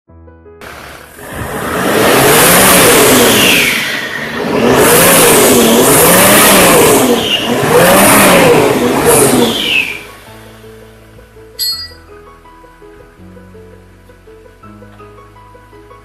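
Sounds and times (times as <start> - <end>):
diesel engine revving: 0.6 - 10.5.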